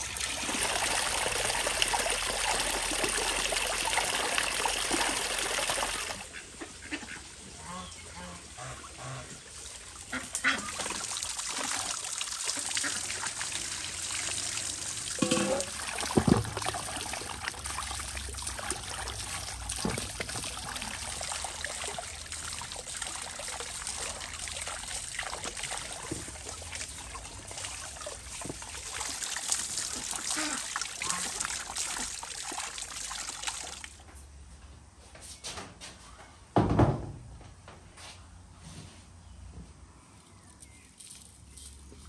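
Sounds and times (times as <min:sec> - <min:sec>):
running water splashing: 0:00.0 - 0:06.4, 0:08.2 - 0:34.0.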